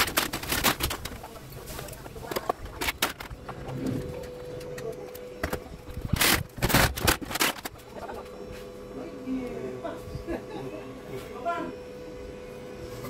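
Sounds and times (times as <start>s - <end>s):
circuit boards clattering and scraping: 0.0s - 8.1s.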